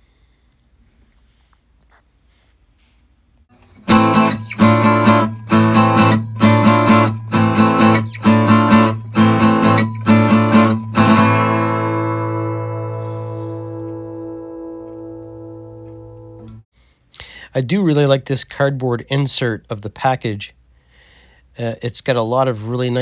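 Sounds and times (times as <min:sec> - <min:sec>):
strummed guitar chords: 0:03.6 - 0:16.6.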